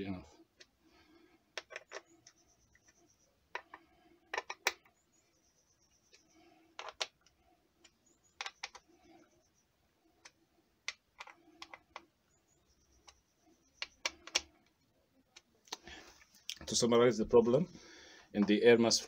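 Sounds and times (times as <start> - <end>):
small screws clicking: 10.2 - 12.1.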